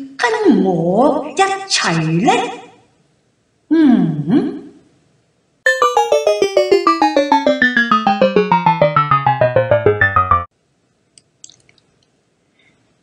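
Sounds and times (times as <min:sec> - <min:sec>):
descending piano-like keyboard notes: 0:05.7 - 0:10.5.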